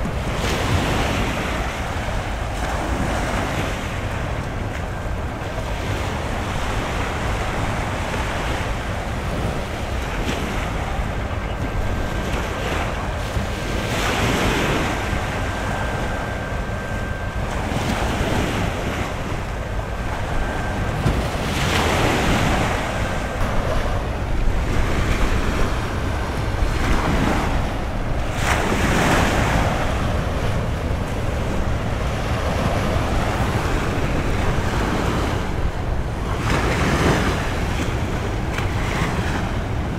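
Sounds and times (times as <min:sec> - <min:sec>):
wind buffeting microphone: 0:00.0 - 0:39.9
waves washing on rocks: 0:11.8 - 0:39.9.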